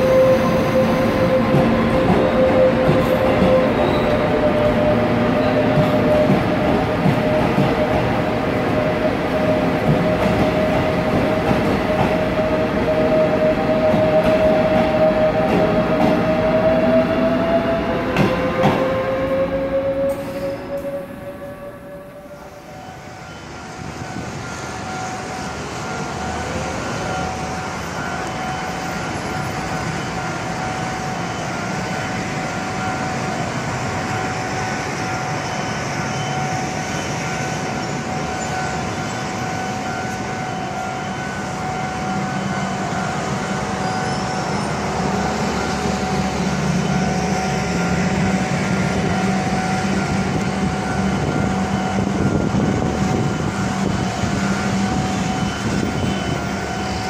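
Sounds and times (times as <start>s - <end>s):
rumble of traffic and railway: 0.0s - 57.0s
level crossing alarm ringing: 20.9s - 57.0s.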